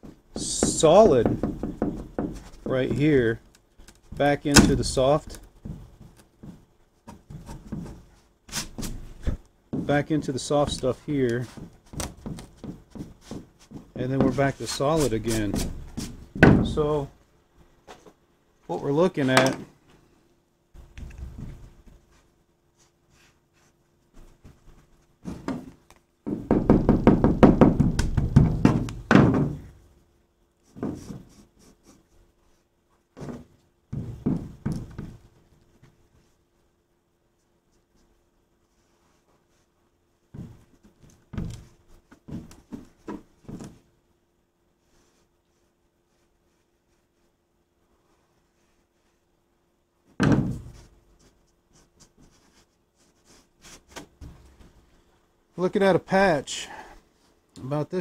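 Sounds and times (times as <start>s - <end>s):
knocks on fiberglass hull: 0.7s - 2.4s, 26.3s - 29.7s.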